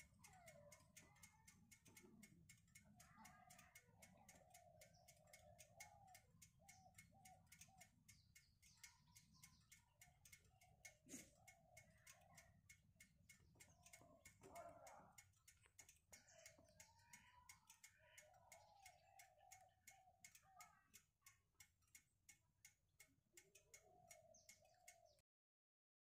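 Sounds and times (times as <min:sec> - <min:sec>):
faint steady ticking: 0:00.0 - 0:25.2
faint wavering chirp-like tones: 0:02.5 - 0:21.2.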